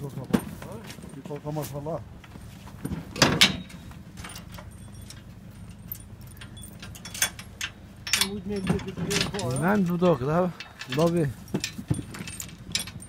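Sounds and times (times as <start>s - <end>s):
chain rattling against steel bars: 2.8s - 13.0s
loud metal clanks: 2.8s - 13.0s
light chain jingling: 3.6s - 13.0s.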